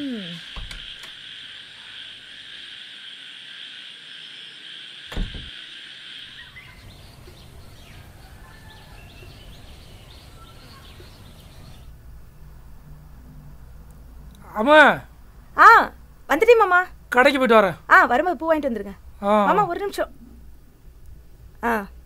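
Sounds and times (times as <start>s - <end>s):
crickets droning: 0.0s - 12.0s
birds chirping: 5.1s - 11.9s.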